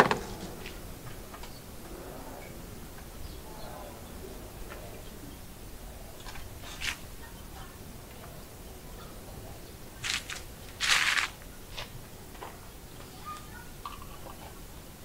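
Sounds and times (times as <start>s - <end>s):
paper rustling: 10.0s - 11.9s.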